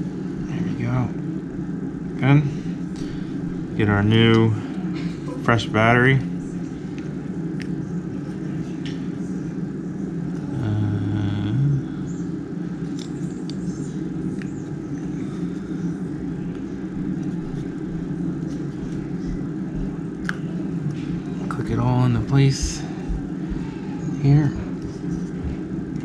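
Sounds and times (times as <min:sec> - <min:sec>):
steady low hum: 0:00.0 - 0:26.0
loud low drone: 0:10.4 - 0:12.2.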